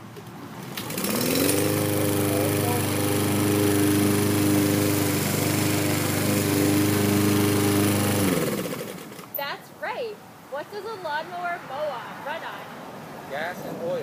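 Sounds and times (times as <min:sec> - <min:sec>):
lawn mower engine starting and running: 0:00.0 - 0:09.4.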